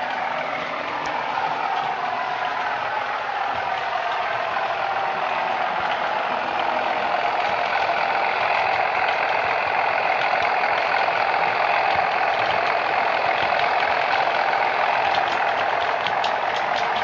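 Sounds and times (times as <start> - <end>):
diesel engine sound from small speaker: 0.0 - 17.0.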